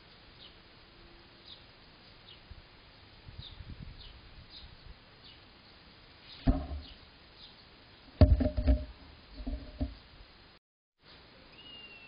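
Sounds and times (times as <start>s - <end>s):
small bird chirping: 0.0s - 0.6s, 1.3s - 2.5s, 3.4s - 8.0s, 11.1s - 12.0s
bird thumping and rattling: 6.4s - 7.0s, 8.2s - 10.0s.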